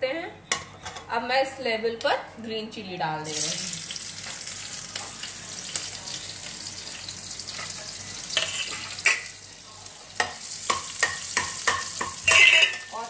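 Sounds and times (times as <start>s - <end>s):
spices sizzling in hot oil: 3.2s - 13.0s
utensil knocking a pan: 10.2s - 13.0s.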